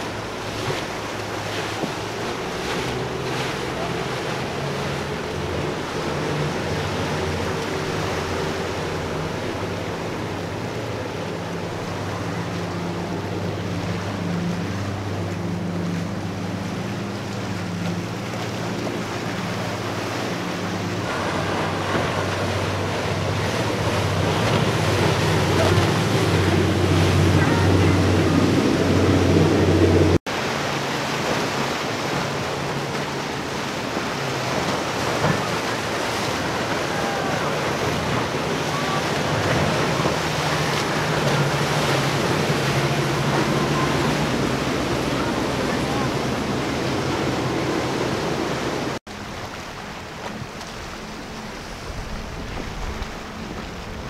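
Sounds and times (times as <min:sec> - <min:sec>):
outboard motors droning: 0:00.0 - 0:54.0
wake and waves rushing: 0:00.0 - 0:54.0
wind on microphone: 0:50.1 - 0:54.0.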